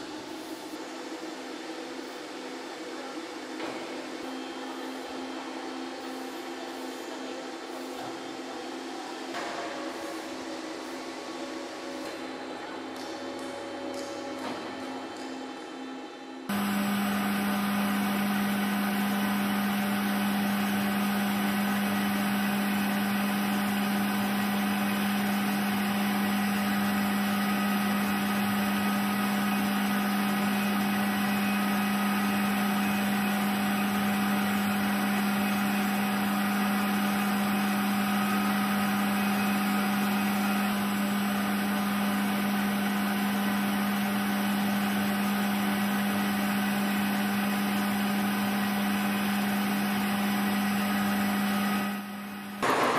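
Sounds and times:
milling machine hum: 16.5 - 52.9.

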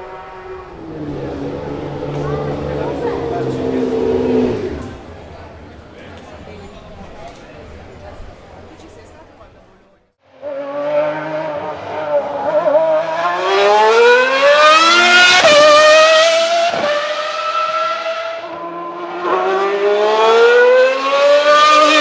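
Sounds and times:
racing car engine accelerating: 0.0 - 5.9, 10.3 - 22.0.

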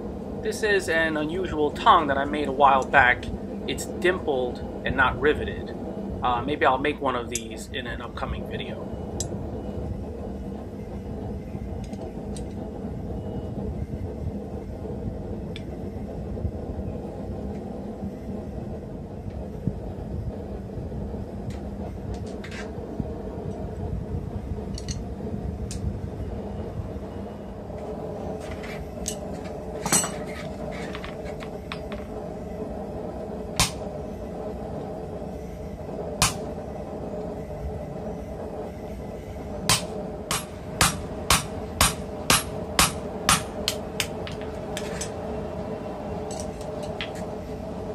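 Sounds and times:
faint hum: 0.0 - 47.9
metal tools clinking: 29.8 - 31.9.

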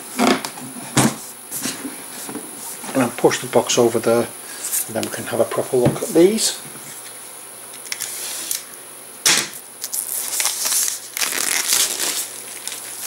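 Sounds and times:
plastic wrap crinkling: 9.8 - 13.0.

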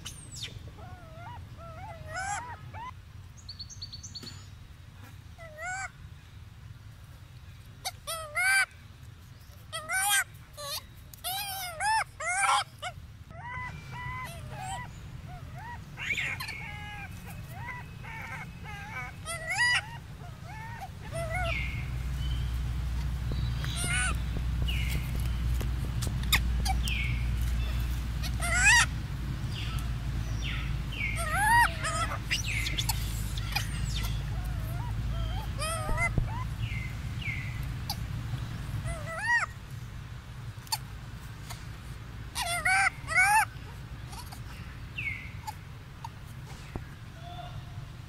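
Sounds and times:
monkeys making squeaky calls: 0.4 - 2.9, 5.4 - 5.9, 7.8 - 8.7, 9.7 - 22.1, 22.9 - 39.6, 42.3 - 44.7, 45.3 - 46.8
macaque chirps: 9.7 - 22.6, 23.3 - 28.9, 29.5 - 39.6, 42.3 - 46.8
steady low rumble: 12.9 - 42.4.

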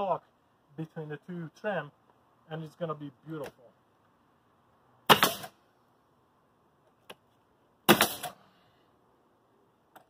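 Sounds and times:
nail gun firing bang: 5.1 - 5.6, 7.9 - 8.4.

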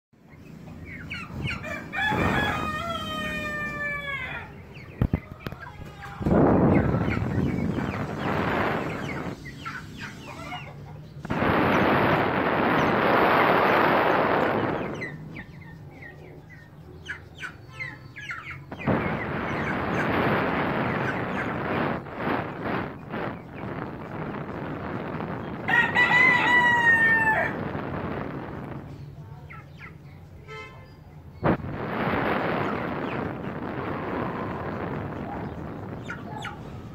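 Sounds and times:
chickens chirpy calls: 0.2 - 36.9
rooster crowing: 1.6 - 4.5, 25.7 - 27.6
loud burst of noise: 6.2 - 10.3, 11.2 - 15.2, 18.7 - 29.0, 31.4 - 36.9.

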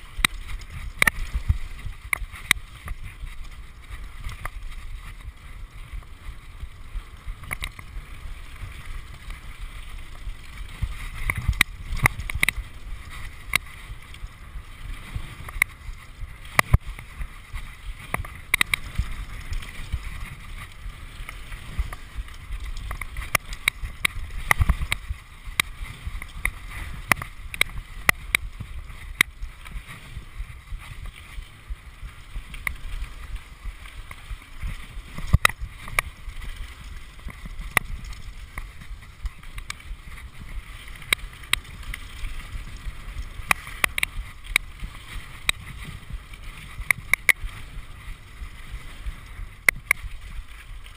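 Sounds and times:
bike rattling over bumps: 0.0 - 50.9
bike tyres on gravel: 0.0 - 50.9.

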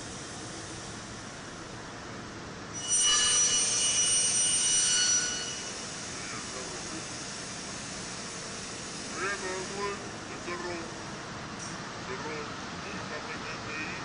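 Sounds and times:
machinery hissing: 0.0 - 14.0
high-pitched squeal: 2.7 - 7.2.

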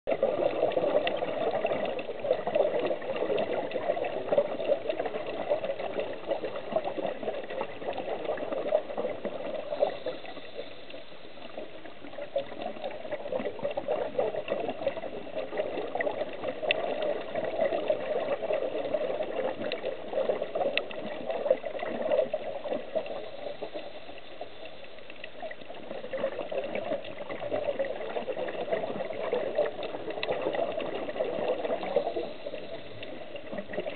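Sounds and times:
underwater bubbling and churning: 0.0 - 33.9
faint sharp clicks: 0.7 - 8.8, 15.8 - 19.0, 19.6 - 19.9, 22.7 - 33.9.

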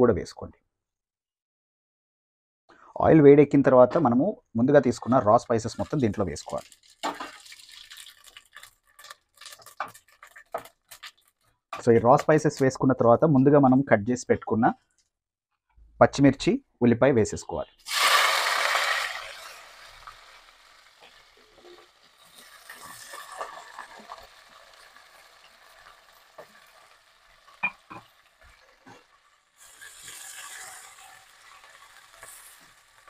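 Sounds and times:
onions sizzling in hot oil: 5.6 - 11.4, 17.8 - 33.0.

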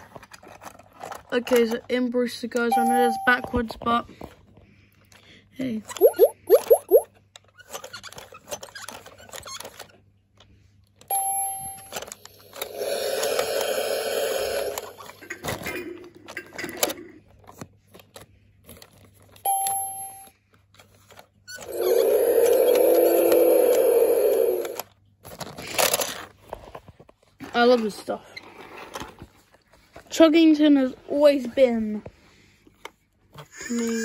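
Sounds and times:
short electronic beep: 2.7 - 3.6, 19.5 - 20.3
toy sound effect: 5.9 - 7.1
plastic crank clicking: 21.6 - 24.9.

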